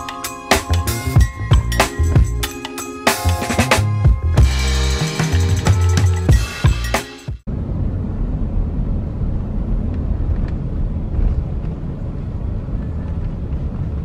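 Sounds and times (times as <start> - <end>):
road and engine rumble: 3.2 - 14.0.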